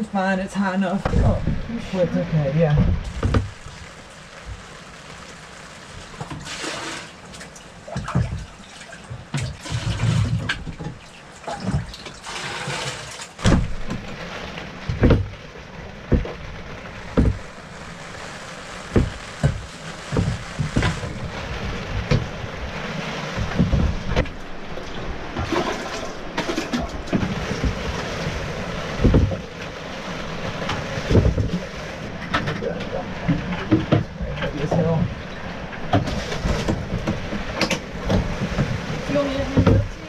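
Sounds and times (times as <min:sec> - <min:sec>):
water splashing: 0:00.0 - 0:40.0
water scooped and poured into buckets: 0:03.0 - 0:13.5, 0:17.0 - 0:21.9, 0:24.9 - 0:28.4.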